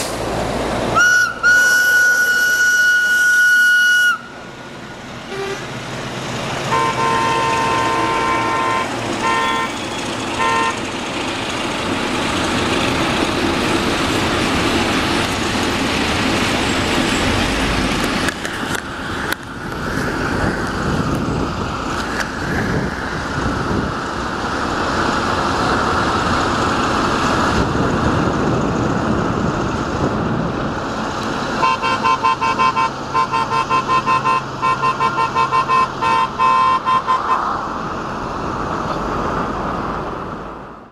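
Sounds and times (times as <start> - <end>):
freight train rumble: 0.0 - 40.9
locomotive whistle: 1.0 - 4.4, 5.3 - 5.7, 6.7 - 10.8, 31.6 - 37.6.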